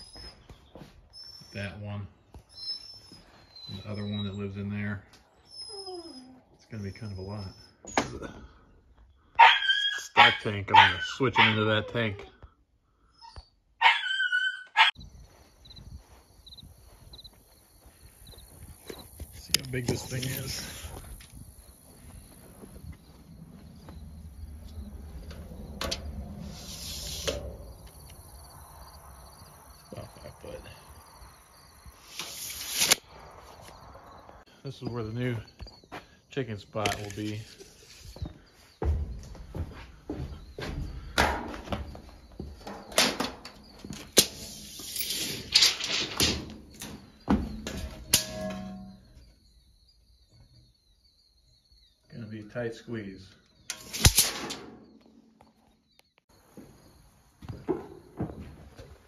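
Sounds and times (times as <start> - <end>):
insects chirring: 15.0 - 59.0
low outdoor rumble: 22.0 - 30.3
tape measure scraping floor: 26.4 - 27.6, 32.0 - 33.0, 37.0 - 38.2, 44.0 - 46.4
footsteps on wooden floor: 38.0 - 42.9, 56.5 - 59.0.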